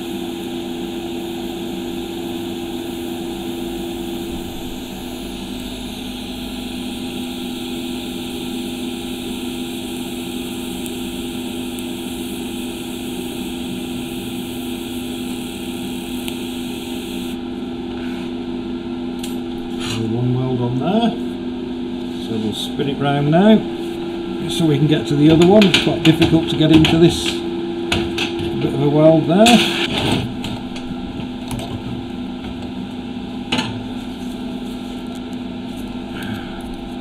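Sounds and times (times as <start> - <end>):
welding arc hissing: 0.0 - 18.5, 19.1 - 27.6, 28.8 - 37.0
low hum: 3.3 - 8.2.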